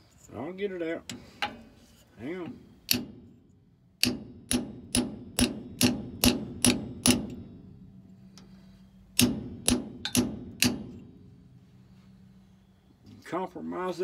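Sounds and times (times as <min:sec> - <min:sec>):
hammer hitting metal chisel: 0:04.0 - 0:07.4, 0:09.2 - 0:11.0.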